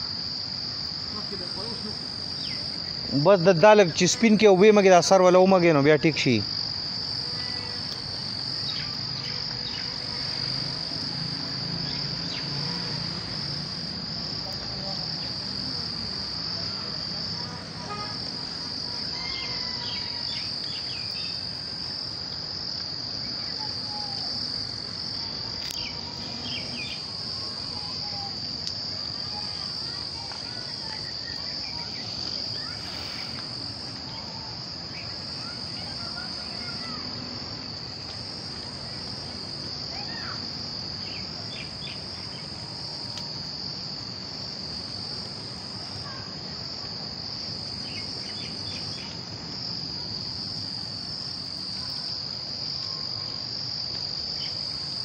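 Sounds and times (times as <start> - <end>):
insect chorus droning: 0.0 - 55.0.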